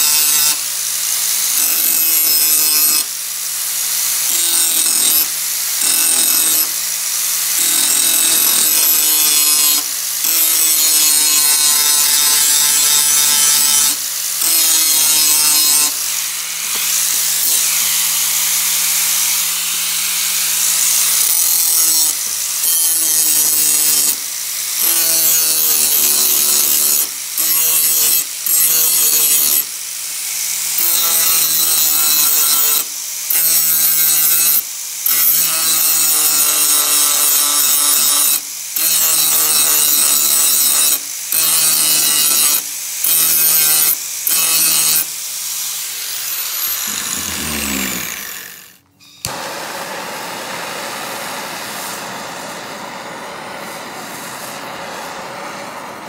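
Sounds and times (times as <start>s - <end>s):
angle grinder on steel: 0.0s - 52.0s
blowtorch flame hissing: 45.8s - 55.0s.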